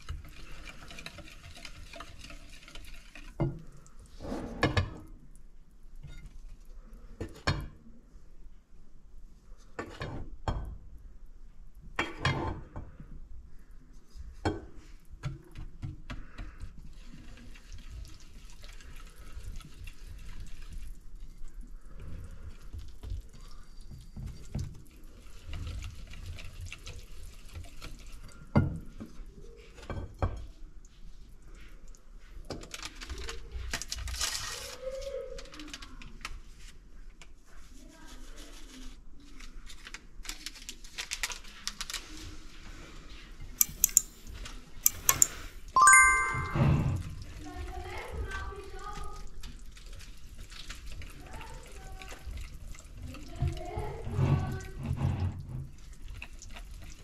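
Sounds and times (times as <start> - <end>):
soft stirring: 0.0 - 4.3
bowl and utensils clinking: 44.9 - 46.6.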